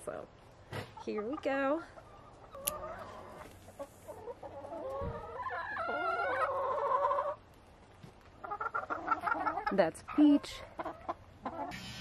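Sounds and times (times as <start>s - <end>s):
hens clucking: 0.1s - 11.8s.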